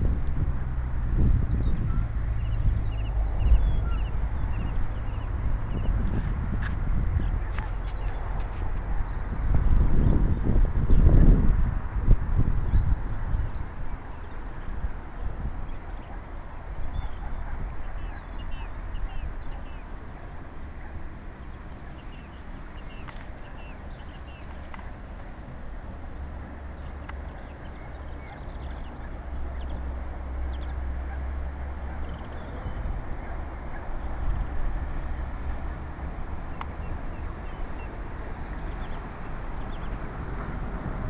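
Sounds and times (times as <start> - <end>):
tide washing along riverbank: 0.0 - 41.0
wind rumble on microphone: 0.0 - 41.0
faint bird calls: 15.7 - 19.9.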